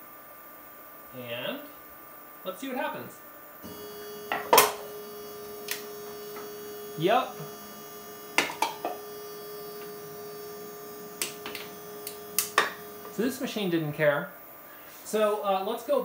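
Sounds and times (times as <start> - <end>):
machine motors whining: 3.6 - 14.0.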